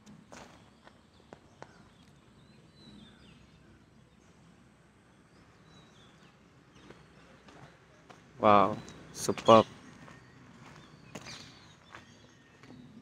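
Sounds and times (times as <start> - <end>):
faint outdoor ambience: 0.0 - 13.0.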